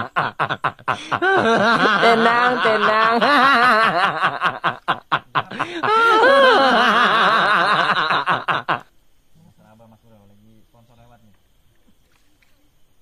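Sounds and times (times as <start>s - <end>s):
person laughing: 0.0s - 8.8s.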